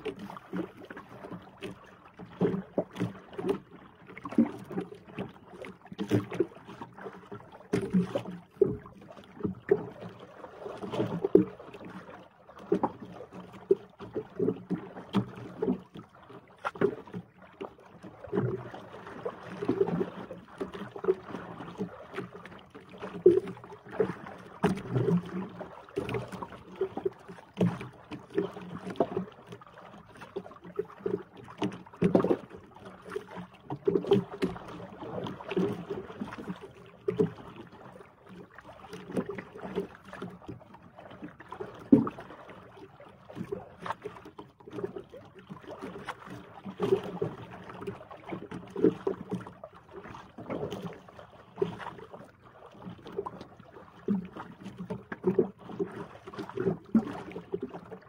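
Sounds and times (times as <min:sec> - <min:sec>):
water slapping against boat hull: 0:00.0 - 0:58.0.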